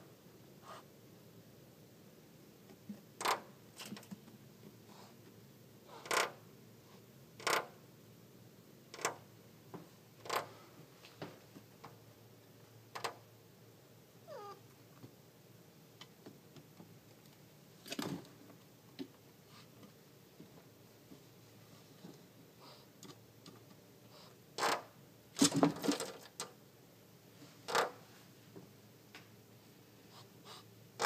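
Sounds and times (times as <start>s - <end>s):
cat chirping: 14.3s - 14.6s.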